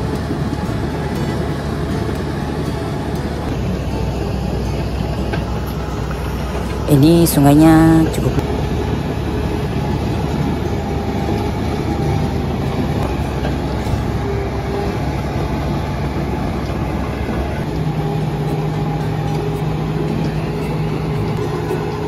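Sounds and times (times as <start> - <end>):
bulldozer diesel engine running: 0.0 - 22.0
water churning around tracks: 0.0 - 22.0.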